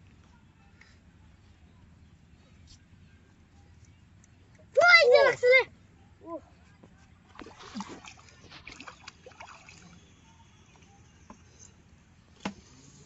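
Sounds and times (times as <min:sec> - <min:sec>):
faint water splashing and dripping: 0:07.3 - 0:11.4.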